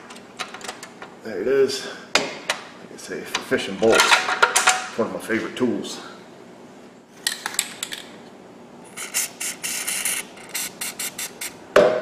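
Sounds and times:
aerosol spray hissing: 9.0 - 11.6.

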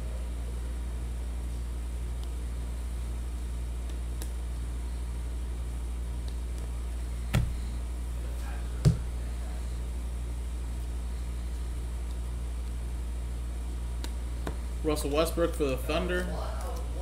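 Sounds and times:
steady low hum: 0.0 - 17.0
cards knocking: 6.3 - 7.8.

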